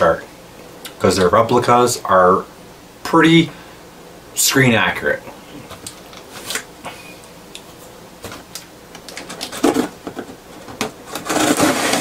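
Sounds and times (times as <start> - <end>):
knife slitting packing tape: 11.1 - 12.0.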